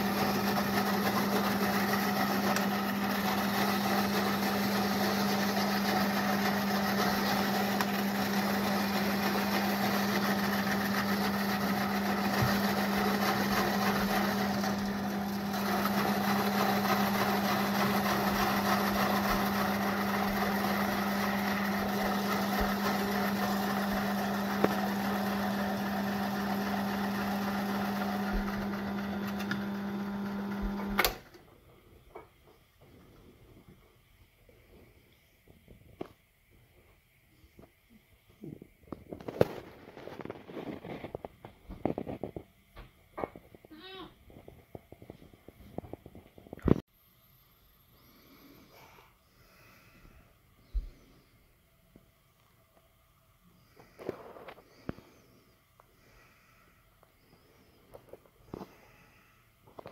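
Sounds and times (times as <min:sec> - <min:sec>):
vegetables being grated: 0:00.0 - 0:30.9
metal lathe humming: 0:00.0 - 0:31.0.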